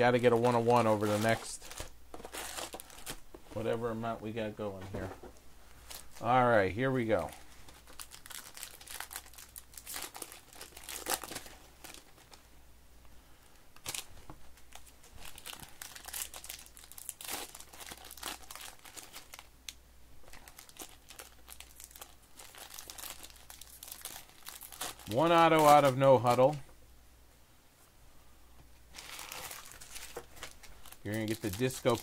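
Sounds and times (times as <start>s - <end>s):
foil wrappers crinkling and tearing: 0.0s - 3.7s, 7.0s - 12.5s, 13.8s - 19.5s, 20.2s - 26.6s, 28.9s - 32.0s.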